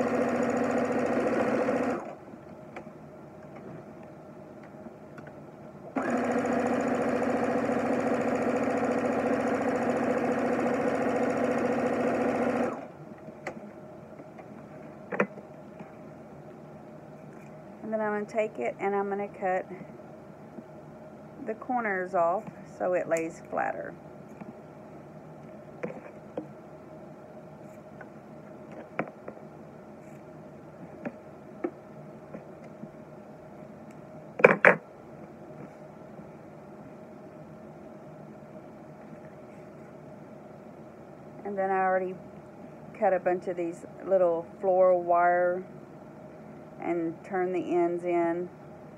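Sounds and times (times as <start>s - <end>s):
sewing machine stitching: 0.0s - 2.2s, 6.0s - 12.9s
steady background hum: 0.0s - 48.9s.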